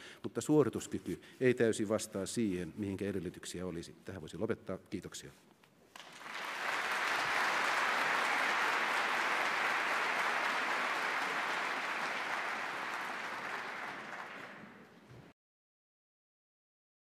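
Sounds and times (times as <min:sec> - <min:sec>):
audience applauding: 0:06.0 - 0:15.0.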